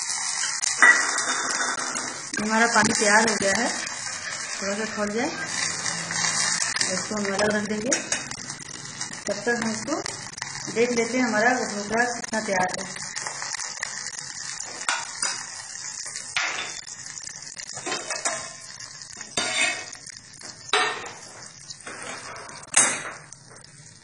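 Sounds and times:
metal cookware clinking: 0.4 - 5.5, 7.1 - 8.4, 14.6 - 16.9, 17.8 - 20.0, 20.6 - 23.3.

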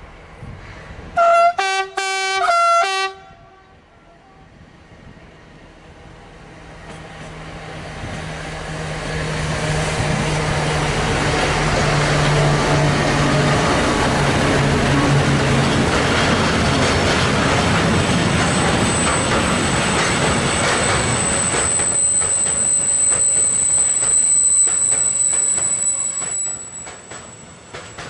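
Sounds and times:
diesel locomotive engines: 0.0 - 28.0
two-tone locomotive horn blasts: 1.2 - 4.5
train wheels rolling: 6.7 - 28.0.

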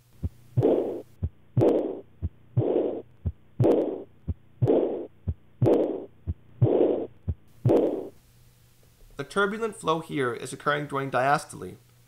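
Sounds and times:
noisy heart murmur: 0.1 - 8.2
heartbeat sounds: 0.2 - 8.1.

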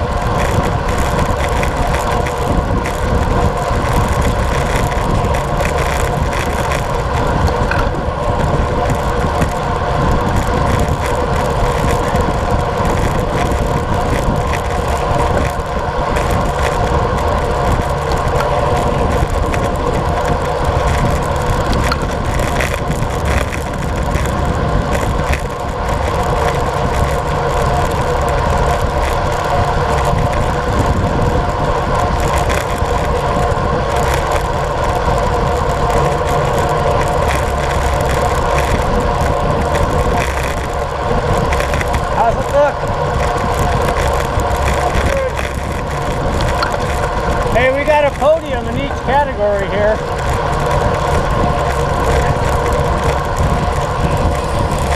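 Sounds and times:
bike tyres humming on asphalt: 0.0 - 54.9
wind on microphone: 0.0 - 54.9.

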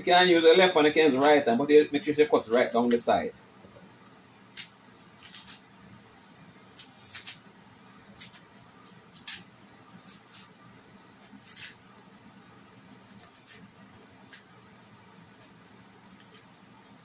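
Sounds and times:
plantain skin tearing: 4.6 - 5.6, 6.8 - 7.4, 8.2 - 9.5.

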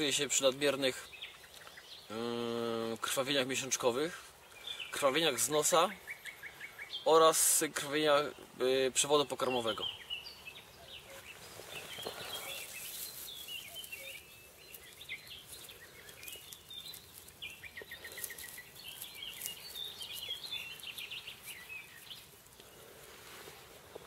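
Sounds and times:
songbirds singing and chirping: 0.0 - 24.0
grass stems rustling: 10.7 - 24.0.

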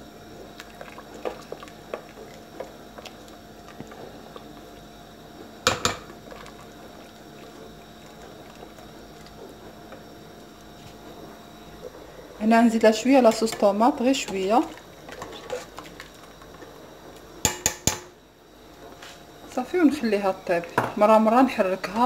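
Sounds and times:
liquid sloshing in a pot: 0.3 - 12.1, 12.7 - 16.8
spoon knocking on pot: 5.6 - 6.1, 17.4 - 18.1.

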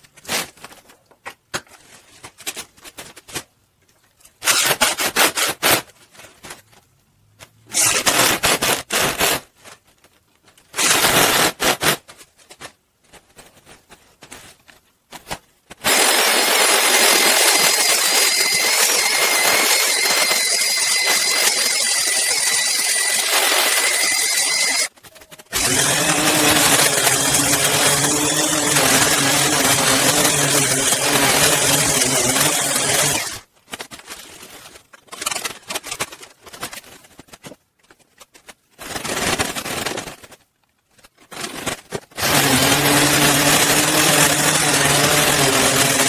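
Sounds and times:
orbital sander on wood: 25.6 - 33.4.

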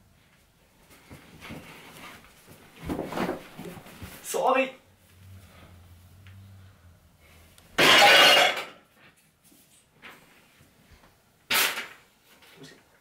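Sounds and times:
glass shattering: 7.8 - 8.8.

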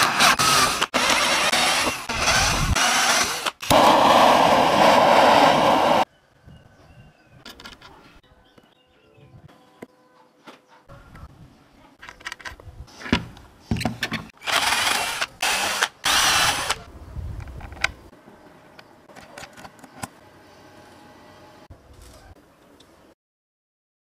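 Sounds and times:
power drill boring into plastic: 0.0 - 6.0, 14.4 - 16.8
small clicks of parts handled: 12.0 - 12.7.

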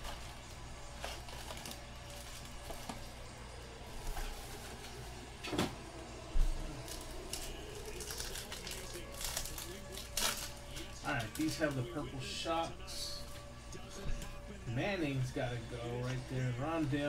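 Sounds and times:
card packs clicking and rustling: 0.0 - 5.7, 6.6 - 13.4.

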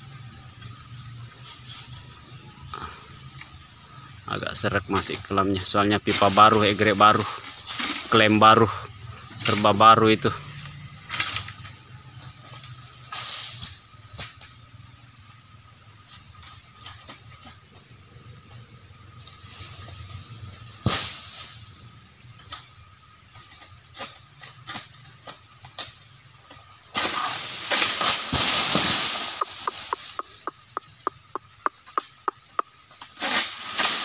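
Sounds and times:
high insect drone: 0.0 - 34.0
palm frond crashing through foliage: 26.9 - 29.9, 33.1 - 34.0.

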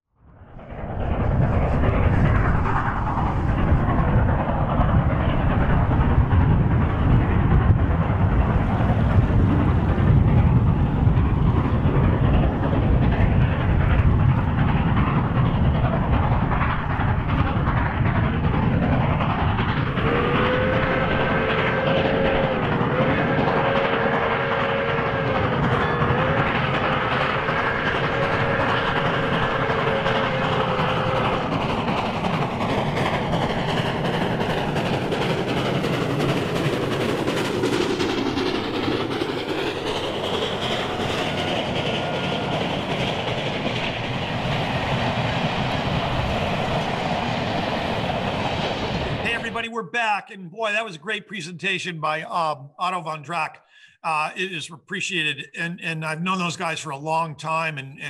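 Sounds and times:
steam train rumble and rail clatter: 0.2 - 58.0
steam train chime whistle: 23.5 - 26.9.

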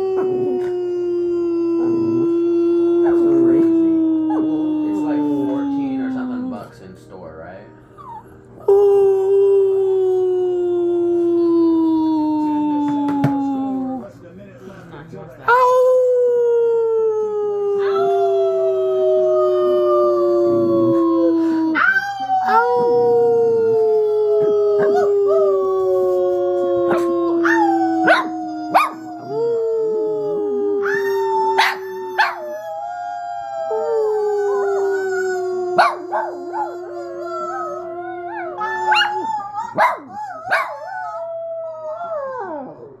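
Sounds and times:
small dog howling: 0.0 - 6.7, 15.5 - 43.0
dog yipping: 38.9 - 40.8.

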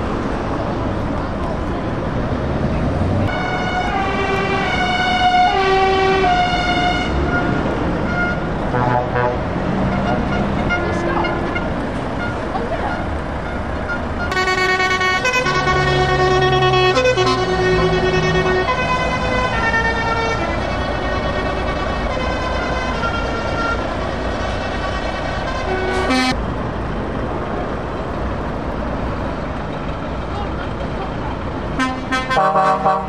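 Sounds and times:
diesel truck engines: 0.0 - 33.0
musical truck air horn: 3.3 - 12.4, 14.3 - 26.4, 31.8 - 33.0.

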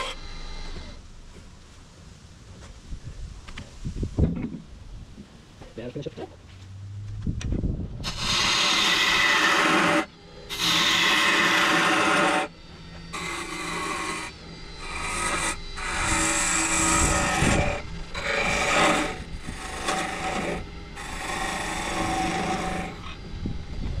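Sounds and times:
turning tool scraping wood: 8.0 - 23.2
lathe humming: 8.0 - 24.0.

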